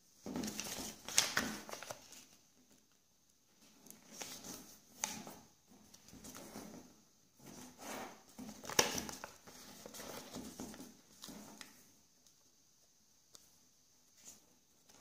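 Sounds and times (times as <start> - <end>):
paper rustling and sliding: 0.2 - 2.4, 3.6 - 11.8
paper crackling as folded: 0.3 - 2.9, 3.8 - 6.5, 8.5 - 11.8.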